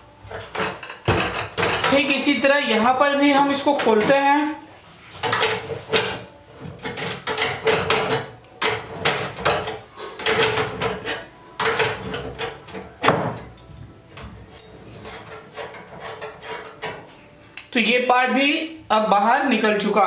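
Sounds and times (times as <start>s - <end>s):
stove body ringing: 5.2s - 17.1s.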